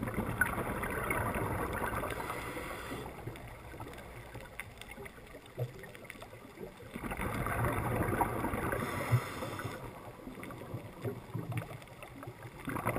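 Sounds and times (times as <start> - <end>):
diver exhaling bubbles underwater: 0.0 - 3.8, 6.9 - 11.7, 12.5 - 12.9
faint crackling: 0.0 - 12.9.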